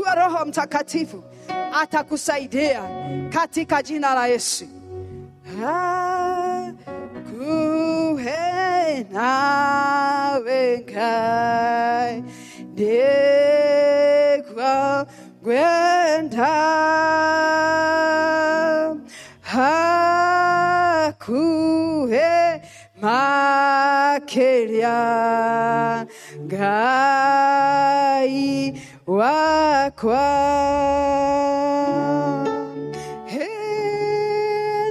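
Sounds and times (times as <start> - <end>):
soft instrumental accompaniment: 0.0 - 34.9
woman singing into a microphone: 0.0 - 34.9.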